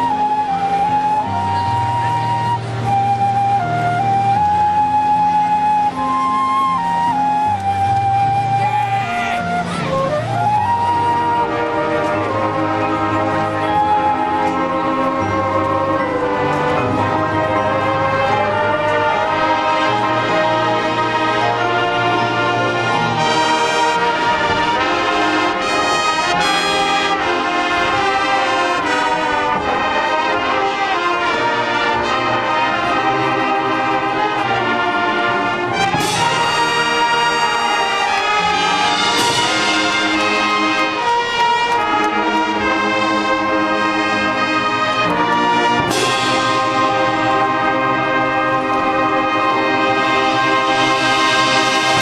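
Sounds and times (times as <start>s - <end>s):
marching band brass chords: 0.0s - 52.0s
percussion: 2.5s - 52.0s
accented band hits: 11.1s - 52.0s.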